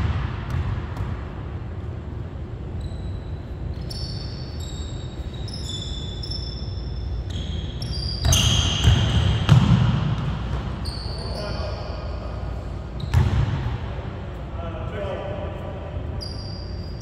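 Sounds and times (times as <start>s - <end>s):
sneaker squeaks: 2.6s - 13.7s, 16.0s - 17.0s.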